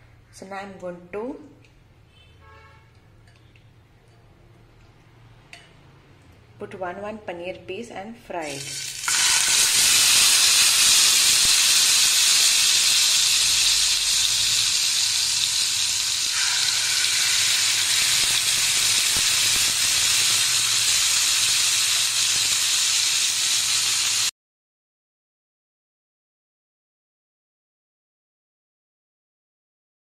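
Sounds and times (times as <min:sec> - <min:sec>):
cheese sizzling in hot oil: 0:08.5 - 0:24.3.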